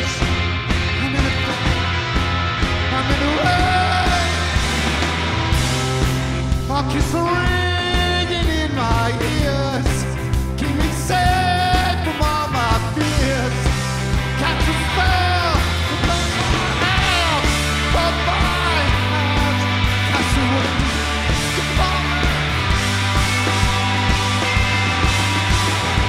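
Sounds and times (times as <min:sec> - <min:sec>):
man singing: 0:00.0 - 0:01.9, 0:02.8 - 0:04.6, 0:06.7 - 0:13.8, 0:14.4 - 0:21.0, 0:21.6 - 0:22.6
drums: 0:00.0 - 0:26.0
electric guitars: 0:00.0 - 0:26.0.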